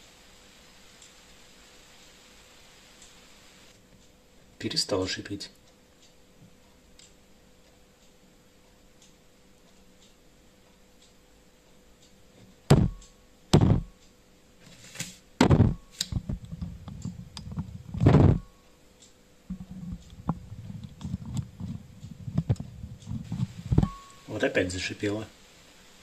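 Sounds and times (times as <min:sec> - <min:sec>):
heavy thuds on microphone: 0:12.7 - 0:13.9, 0:15.4 - 0:16.4, 0:18.0 - 0:18.4, 0:23.3 - 0:24.0
microphone handling rumble and crackle: 0:13.6 - 0:13.9, 0:15.4 - 0:18.4, 0:19.5 - 0:23.9.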